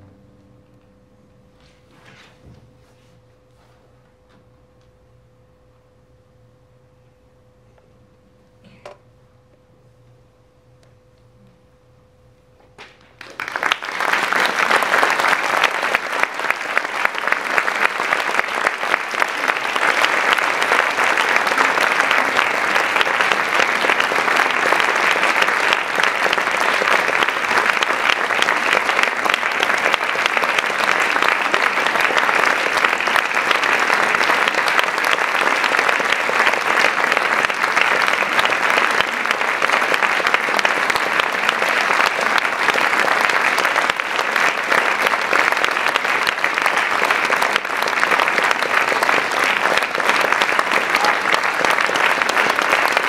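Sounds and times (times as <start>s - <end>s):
audience applauding: 12.8s - 53.0s.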